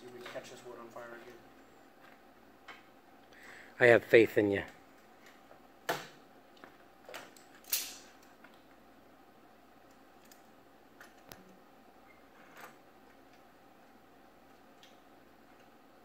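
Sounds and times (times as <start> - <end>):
faint clicks and knocks of metal: 12.5 - 15.8.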